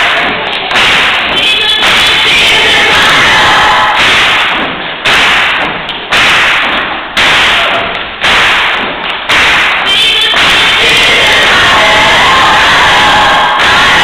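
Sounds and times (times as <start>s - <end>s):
choir clapping in unison: 0.0s - 14.0s
choir singing: 1.3s - 4.0s, 9.9s - 14.0s.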